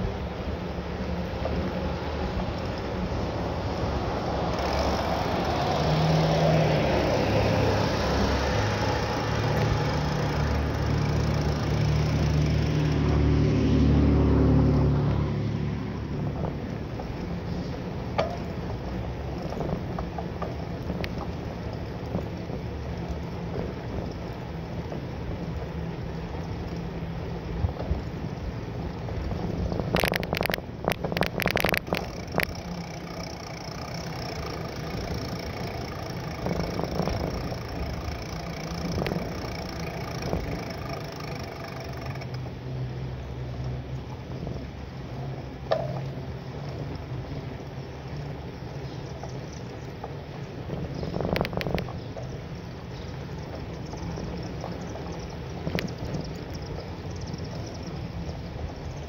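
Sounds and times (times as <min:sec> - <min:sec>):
road rumble: 0:00.0 - 0:59.0
wind: 0:00.0 - 0:59.0
bike knocks and rattling: 0:16.3 - 0:26.8, 0:29.3 - 0:42.4, 0:45.7 - 0:46.2.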